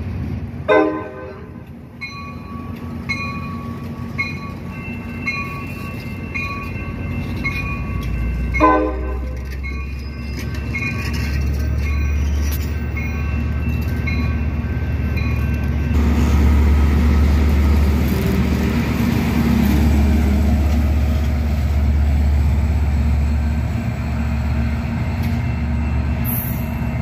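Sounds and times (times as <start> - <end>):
diesel locomotive engine rumbling: 0.0 - 27.0
moving train noise: 0.0 - 27.0.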